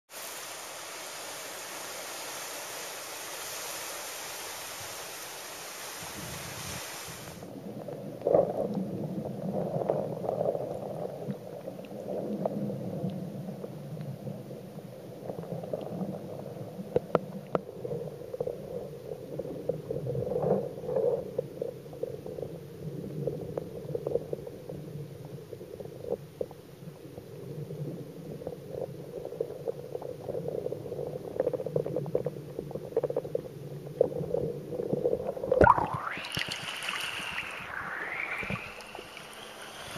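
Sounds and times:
wind and surf hiss: 0.1s - 19.6s, 35.6s - 39.9s
murky underwater noise: 7.4s - 39.9s
bubbling underwater: 34.0s - 39.4s.

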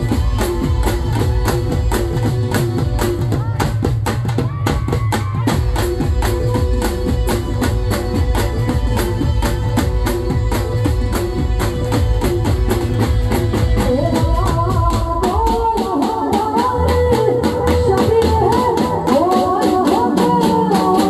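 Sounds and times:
drums playing fast beat: 0.0s - 21.0s
woman singing into microphone: 13.6s - 21.0s.

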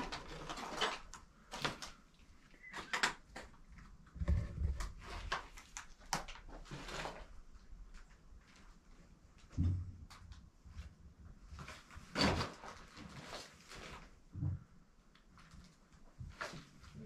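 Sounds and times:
debris crackles and rustles: 0.0s - 2.0s.

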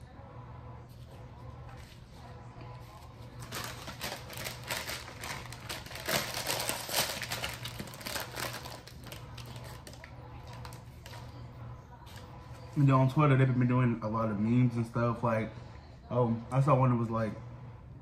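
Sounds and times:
faint low hum: 0.0s - 18.0s
crunchy eating noise: 2.8s - 11.4s.

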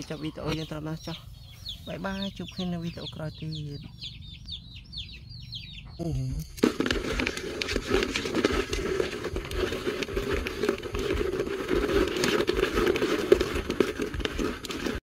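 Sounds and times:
insects scrabbling on plastic: 6.5s - 15.0s.

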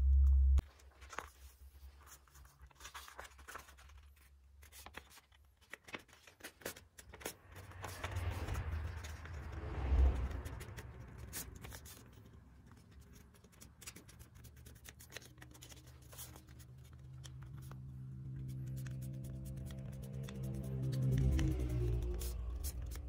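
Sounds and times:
paper rustling and creasing: 0.6s - 23.0s
music: 18.0s - 23.0s.

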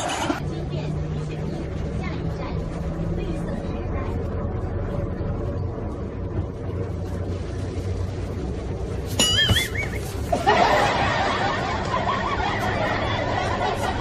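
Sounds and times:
crowd laughing: 0.0s - 0.4s, 10.3s - 14.0s
bus interior hum: 0.0s - 14.0s
short warbling whistle: 9.2s - 10.1s.

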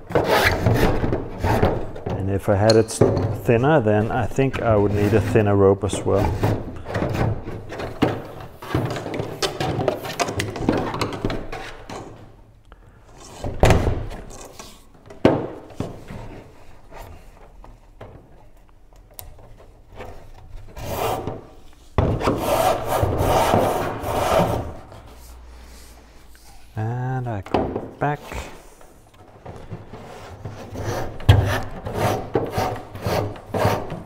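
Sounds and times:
rope rasping against wood: 22.2s - 24.8s, 29.9s - 34.0s.

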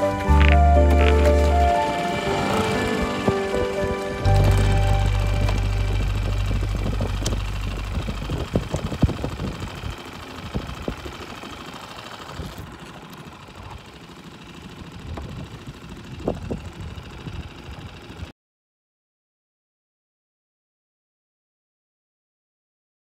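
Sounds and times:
outboard motor idling: 0.0s - 18.3s
wind: 0.0s - 18.3s.

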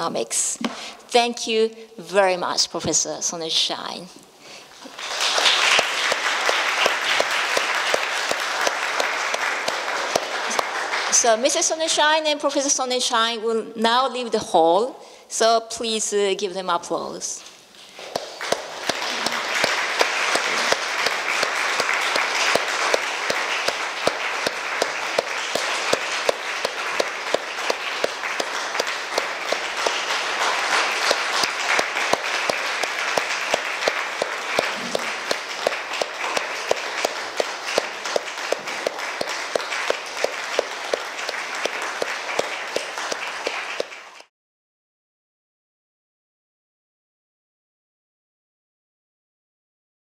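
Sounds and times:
audience applauding: 4.8s - 11.6s, 18.0s - 44.3s.

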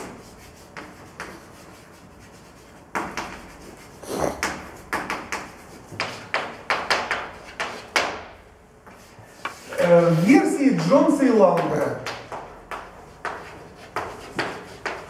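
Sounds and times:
chalk writing on blackboard: 0.0s - 10.9s, 12.4s - 15.0s.

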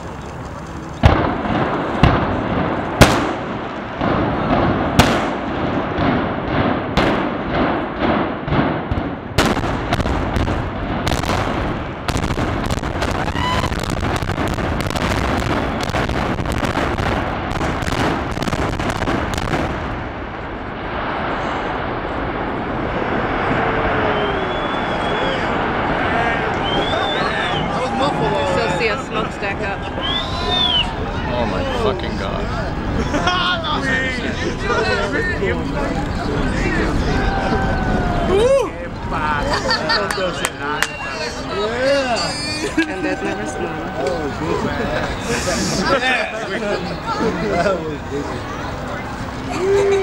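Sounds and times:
crackle of detonations: 0.0s - 27.9s
explosive charges banging: 1.0s - 27.8s.

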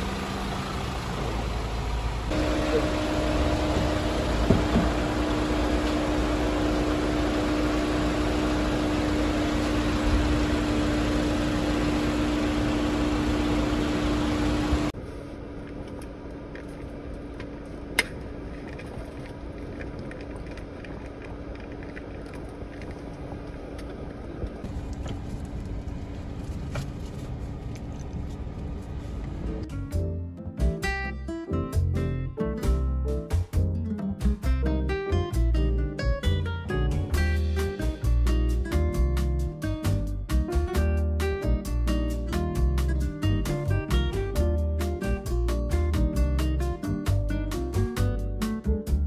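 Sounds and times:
low hum: 0.0s - 29.9s
road and engine noise inside vehicle: 0.0s - 30.0s.

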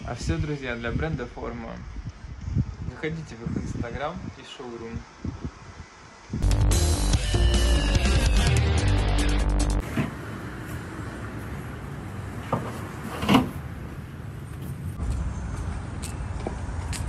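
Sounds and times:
street ambience with traffic hum: 0.0s - 6.4s, 8.9s - 17.0s
intro music: 6.4s - 9.8s.

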